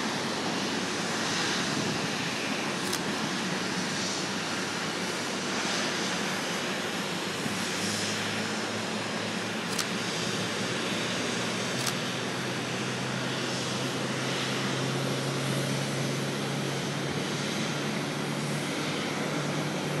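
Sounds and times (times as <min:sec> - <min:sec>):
jet engines rushing: 0:00.0 - 0:20.0
sharp click: 0:02.8 - 0:03.1, 0:09.7 - 0:10.0, 0:11.8 - 0:12.0.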